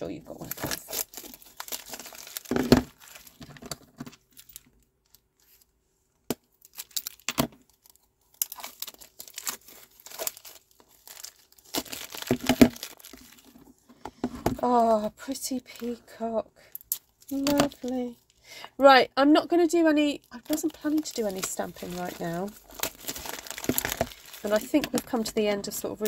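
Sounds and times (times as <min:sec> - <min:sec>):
cellophane crinkling and tearing: 0:00.2 - 0:05.7, 0:06.5 - 0:13.8, 0:16.8 - 0:18.4, 0:20.0 - 0:26.0.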